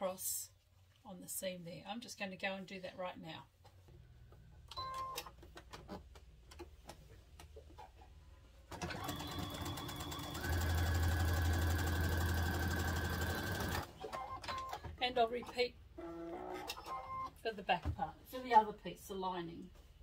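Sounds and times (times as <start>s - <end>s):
sewing machine stitching: 8.7s - 14.8s.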